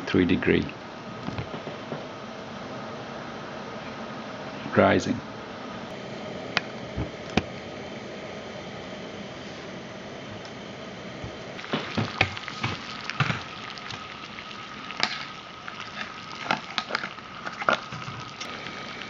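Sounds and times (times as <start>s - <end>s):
stove hissing: 0.0s - 19.0s
water bubbling in a pot: 11.3s - 19.0s.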